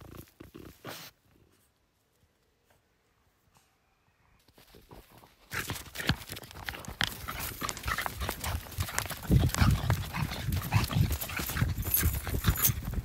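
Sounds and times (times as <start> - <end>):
footsteps on dirt and leaves: 4.5 - 13.0.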